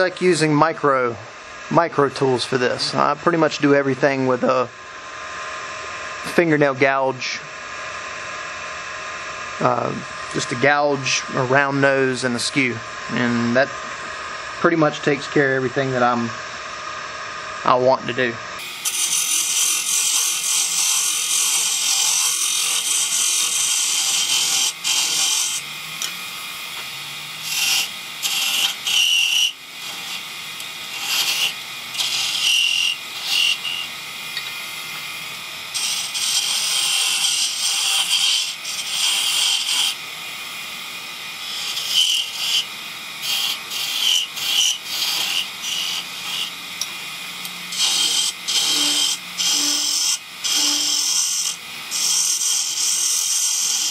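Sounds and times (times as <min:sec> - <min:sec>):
gouge cutting wood hissing: 0:18.6 - 0:53.9
wood lathe running: 0:18.6 - 0:53.9.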